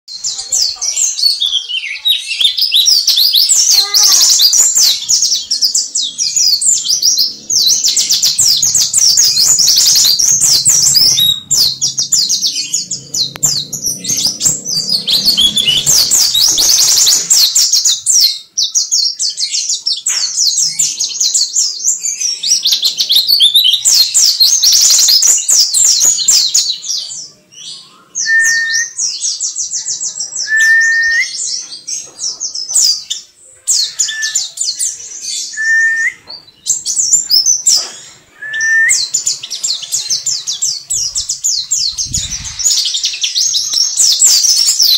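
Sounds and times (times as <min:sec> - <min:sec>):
bird warbling song: 0:00.1 - 0:44.9
low whistled bird notes: 0:30.4 - 0:31.5, 0:37.2 - 0:39.3.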